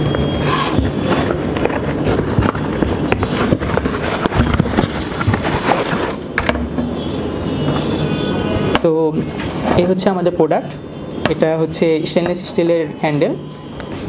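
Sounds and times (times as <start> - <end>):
cardboard box scraping and rubbing: 0.5 - 6.2.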